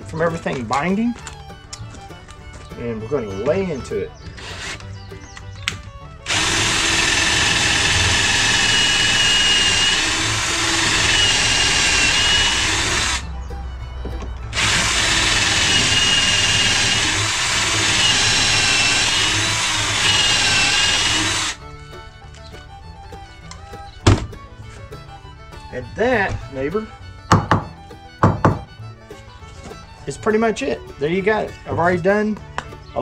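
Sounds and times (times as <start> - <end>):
cordless drill boring with whine: 6.3 - 13.2, 14.6 - 21.6.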